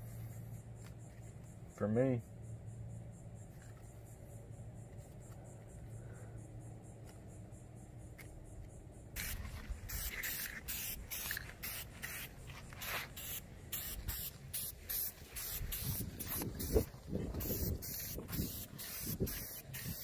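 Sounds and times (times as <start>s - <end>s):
spray can hissing: 9.2s - 20.0s.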